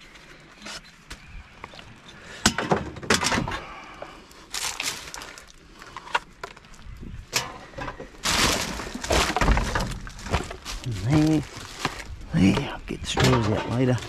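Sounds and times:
rubbish knocking and clattering: 7.4 - 14.0.

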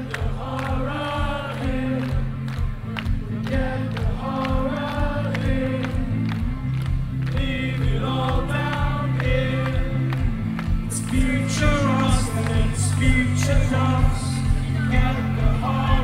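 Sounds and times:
live rock band: 0.0 - 16.0
person singing: 3.2 - 6.3, 7.2 - 10.2, 10.9 - 16.0.

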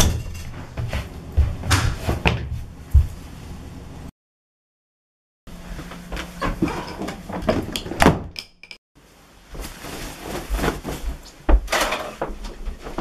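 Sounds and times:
cloth rustling: 9.4 - 11.4.

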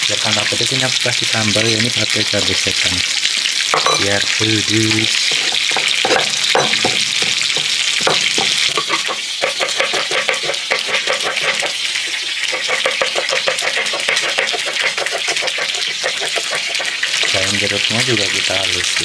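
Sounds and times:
oil frying fish sizzling: 0.0 - 19.0
pestle knocking in stone mortar: 5.2 - 11.7, 12.5 - 16.9
knife chopping on wooden board: 5.3 - 11.7.

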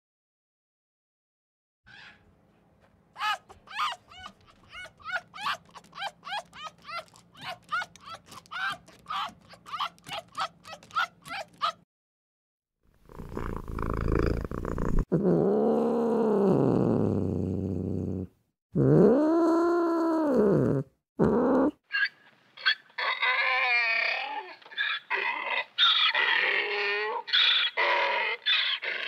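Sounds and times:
high wavering cat cries: 3.2 - 11.8
quick clicks: 5.4 - 11.8.

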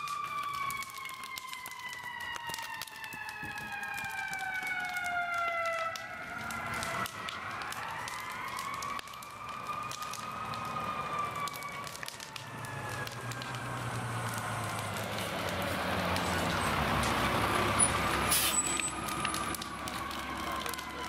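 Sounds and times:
wailing siren: 0.0 - 21.0
diesel truck engine running: 13.0 - 20.7.

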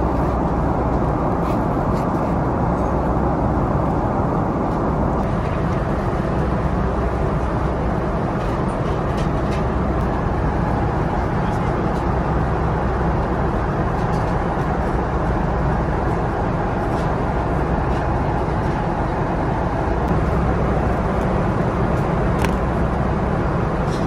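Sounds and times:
airliner cabin rumble and hiss: 0.0 - 24.0.

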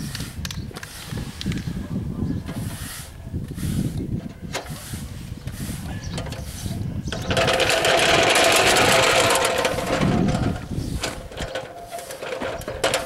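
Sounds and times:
striping machine rattling on asphalt: 4.2 - 13.0.

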